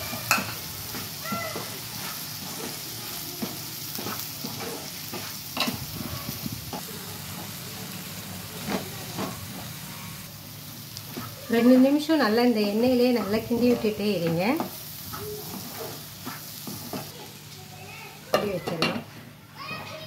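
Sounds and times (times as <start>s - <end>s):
vegetables sizzling in oil: 0.0s - 20.0s
wooden spatula scraping pan: 0.3s - 6.8s, 11.1s - 17.2s.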